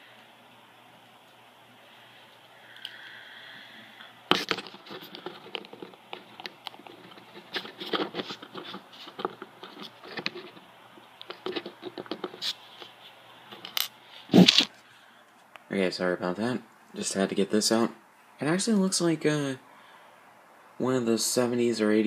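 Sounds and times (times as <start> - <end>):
plastic parts clicking and scraping: 4.3 - 14.7.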